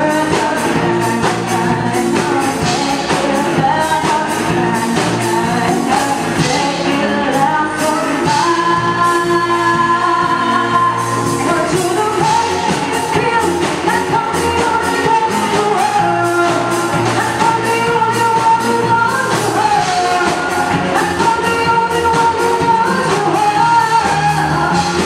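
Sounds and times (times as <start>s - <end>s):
live band playing pop: 0.0s - 25.0s
woman singing lead: 0.0s - 25.0s.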